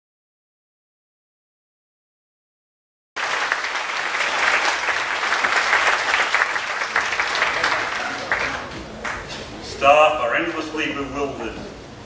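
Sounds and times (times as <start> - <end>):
audience applauding: 3.2 - 9.4.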